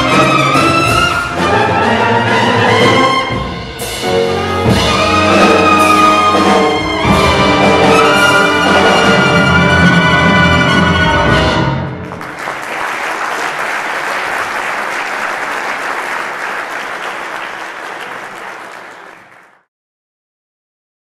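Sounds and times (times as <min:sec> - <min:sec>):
audience applauding: 0:12.0 - 0:19.7.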